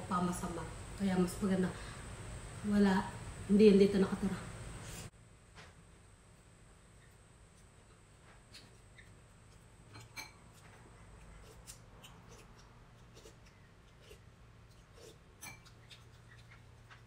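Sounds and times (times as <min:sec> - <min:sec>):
low steady hum: 0:00.0 - 0:17.0
chewing and mouth noises: 0:08.5 - 0:17.0.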